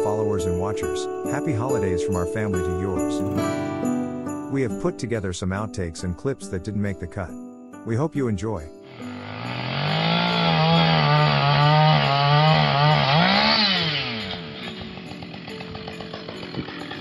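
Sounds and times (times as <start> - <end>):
chainsaw revving and idling: 8.8 - 17.0.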